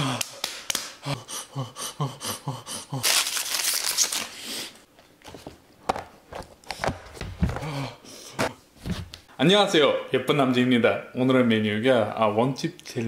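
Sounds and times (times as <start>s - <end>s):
foil wrapper crinkling: 3.0s - 4.4s.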